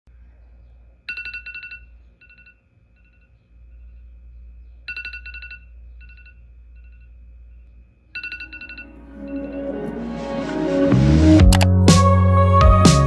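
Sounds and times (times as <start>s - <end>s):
alarm beeping: 4.9s - 7.1s, 8.2s - 10.0s.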